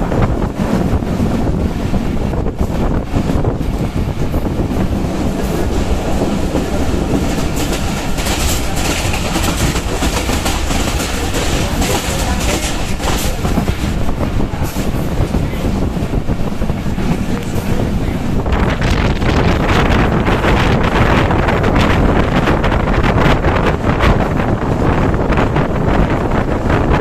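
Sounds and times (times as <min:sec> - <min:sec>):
train running noise rushing: 0:00.0 - 0:27.0
train wheels clattering over joints: 0:02.5 - 0:20.5.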